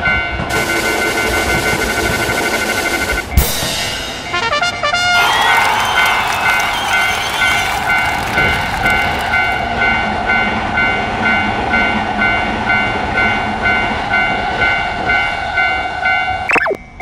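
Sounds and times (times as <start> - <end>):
train rushing and rumbling on rails: 0.0 - 4.4, 5.8 - 17.0.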